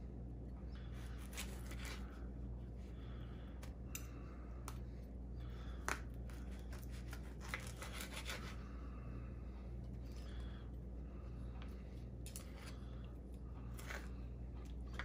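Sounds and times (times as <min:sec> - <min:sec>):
knife sawing through sausage: 0:06.5 - 0:08.6.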